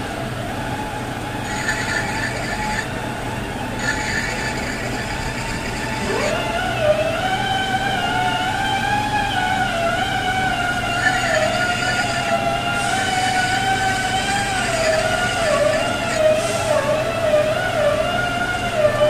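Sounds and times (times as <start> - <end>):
lathe tool squealing against steel: 1.4 - 2.9, 3.8 - 6.4, 10.9 - 16.6.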